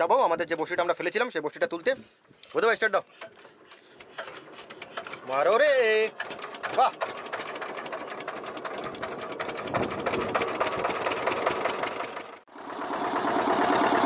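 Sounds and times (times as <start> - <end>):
small boat engine running: 3.1 - 14.0.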